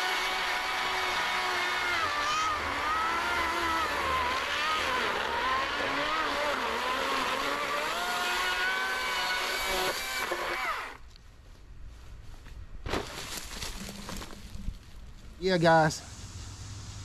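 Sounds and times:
chainsaw cutting log: 0.0 - 11.0.

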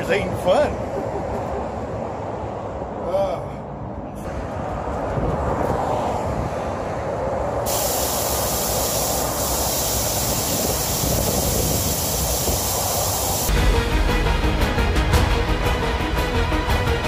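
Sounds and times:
air hissing out of a tire: 7.6 - 13.5.

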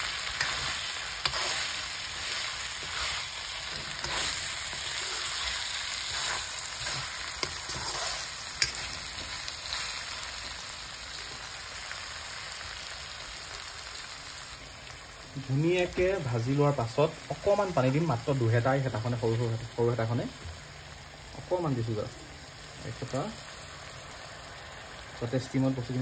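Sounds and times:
food sizzling in a wok: 0.0 - 26.0.

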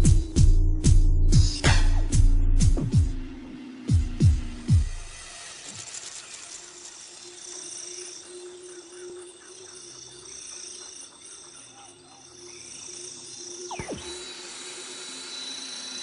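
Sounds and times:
high pulsed whistles: 3.9 - 16.0.

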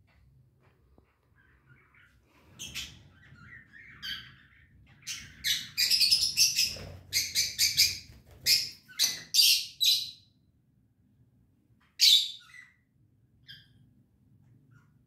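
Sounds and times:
lovebirds chirping: 1.2 - 10.3, 12.0 - 13.9.

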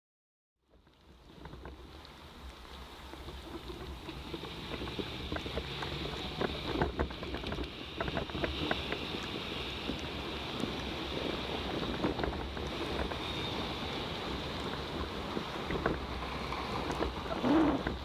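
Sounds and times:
small clicks and rattles: 0.7 - 10.9, 11.6 - 13.2
tyres hissing on wet street: 0.8 - 18.0
wind buffeting microphone: 1.1 - 18.0.

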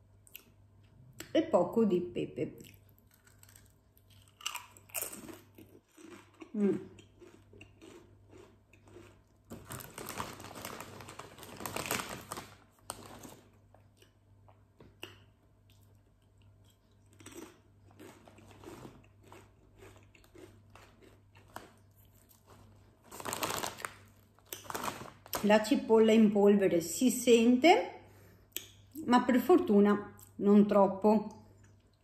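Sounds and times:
chips crunching in mouth: 2.6 - 14.2, 15.0 - 25.4.

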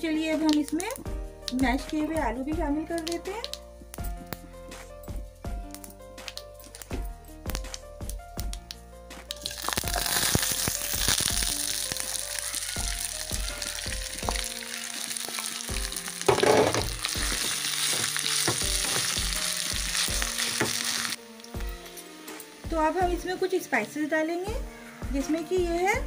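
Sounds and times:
background music with steady beat: 0.0 - 14.7, 15.6 - 26.0
food sizzling in hot oil: 9.3 - 26.0.

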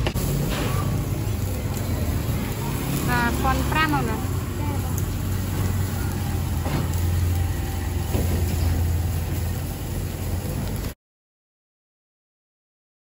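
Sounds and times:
engine idling: 0.0 - 10.8.

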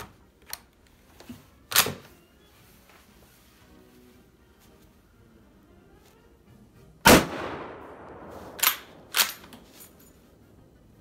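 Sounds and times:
rifle shot with echo: 7.0 - 9.5
rifle bolt clacking: 8.5 - 9.7.

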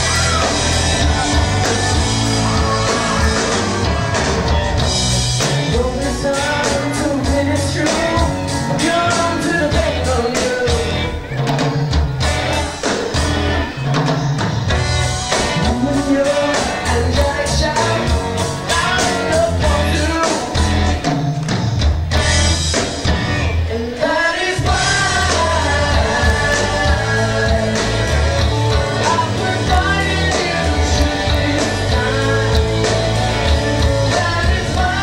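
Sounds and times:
drums: 0.0 - 35.0
electric guitars: 0.0 - 35.0
person singing: 5.4 - 11.5, 15.4 - 20.7, 23.6 - 35.0.

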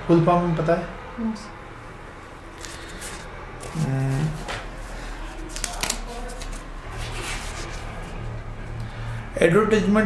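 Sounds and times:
paper sheets rustling: 2.5 - 8.4.

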